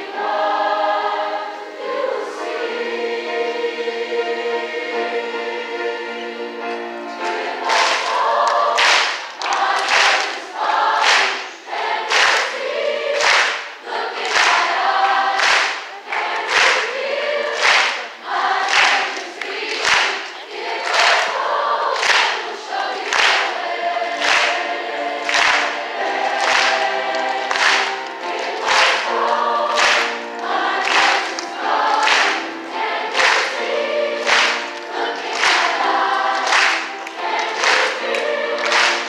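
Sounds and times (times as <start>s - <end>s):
large choir singing: 0.0s - 39.0s
sharp claps on a beat: 7.6s - 11.5s, 12.1s - 12.6s, 13.2s - 17.0s, 17.6s - 21.4s, 22.0s - 32.5s, 33.1s - 33.6s, 34.2s - 39.0s.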